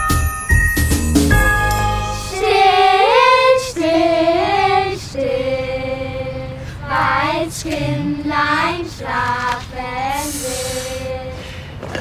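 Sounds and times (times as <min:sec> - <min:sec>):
chiming bell music: 0:00.0 - 0:02.6
girls singing a carol: 0:02.2 - 0:11.4.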